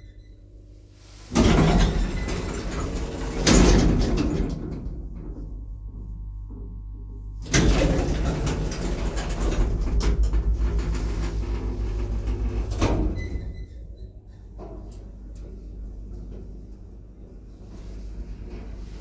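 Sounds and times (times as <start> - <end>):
lift door clunking and rattling: 1.3 - 5.6, 7.4 - 16.6
heavy door slam rumbling: 1.3 - 5.8, 7.4 - 14.0.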